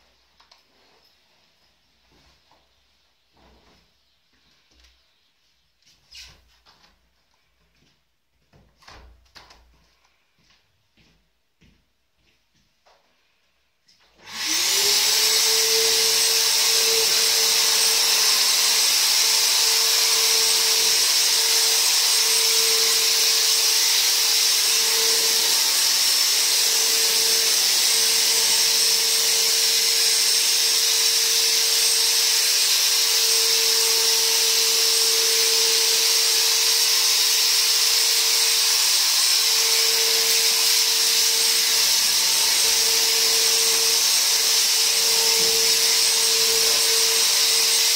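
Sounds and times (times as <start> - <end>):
fogger motor whine: 14.3 - 47.9.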